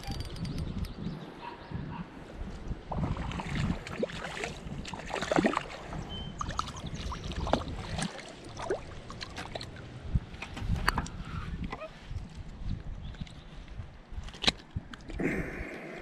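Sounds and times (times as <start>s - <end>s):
wind rumble on microphone: 0.0s - 16.0s
river water splashing: 2.9s - 10.1s.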